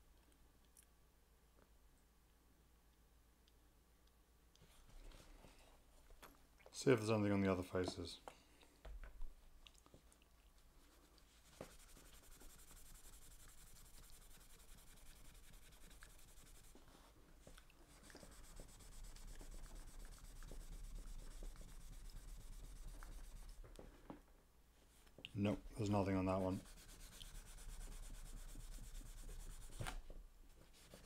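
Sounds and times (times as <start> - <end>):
hand rubbing metal: 11.4 - 16.9, 25.8 - 30.0.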